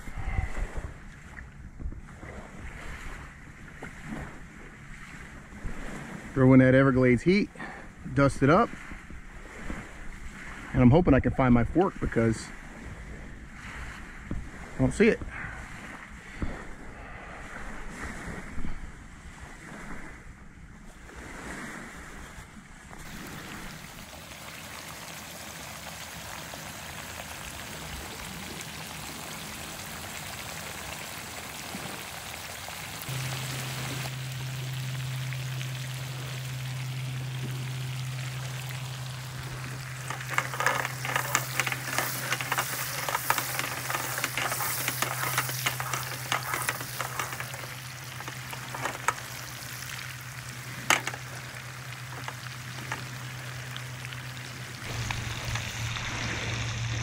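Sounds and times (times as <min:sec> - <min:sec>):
fish sizzling in a pan: 0:23.1 - 0:57.0
low hum: 0:32.9 - 0:57.0
crackling and spattering: 0:33.0 - 0:57.0.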